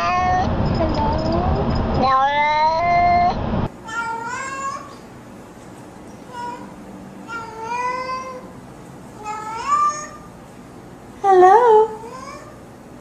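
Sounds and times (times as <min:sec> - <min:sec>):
cat meowing: 0:00.0 - 0:00.5, 0:02.0 - 0:03.4.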